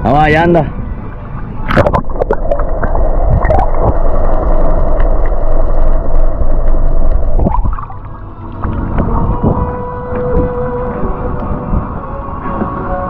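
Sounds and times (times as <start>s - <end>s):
steady hum: 0.7s - 13.0s
boat motor running: 1.1s - 12.0s
water gurgling: 1.4s - 9.8s.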